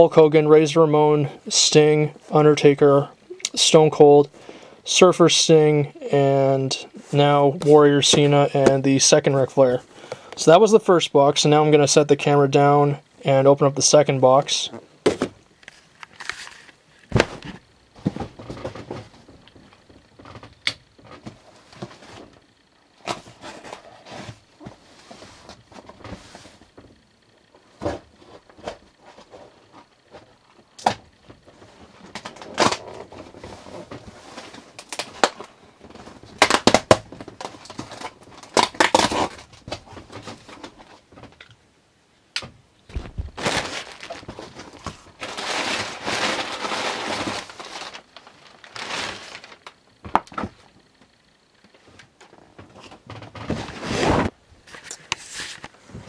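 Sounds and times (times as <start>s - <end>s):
cardboard tearing: 37.8s - 39.5s, 43.2s - 49.7s.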